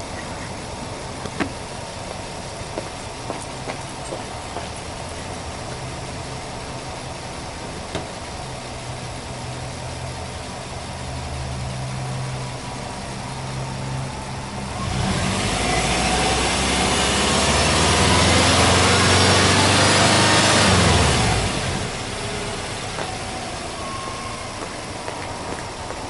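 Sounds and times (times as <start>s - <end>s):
car engine idling and revving: 0.0s - 26.0s.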